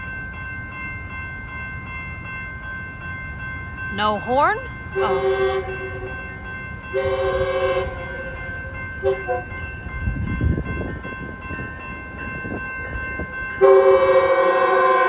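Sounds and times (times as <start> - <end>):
crossing warning bell ringing: 0.0 - 15.0
train rumbling: 0.0 - 15.0
train horn blasts: 5.0 - 6.2, 6.9 - 8.4, 9.0 - 9.6, 13.6 - 15.0.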